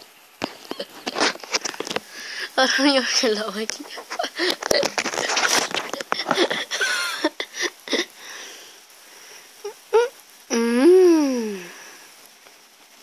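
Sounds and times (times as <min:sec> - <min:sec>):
short vocal sounds: 0:09.6 - 0:11.8.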